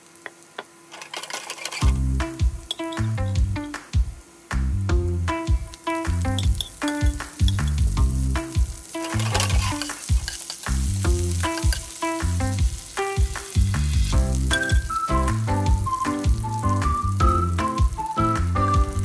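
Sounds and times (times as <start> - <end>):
garlic sizzling in a frying pan: 0.0 - 19.0
instrumental music with pulsing bass: 1.9 - 3.7, 4.6 - 5.5, 7.4 - 8.5, 13.6 - 19.0.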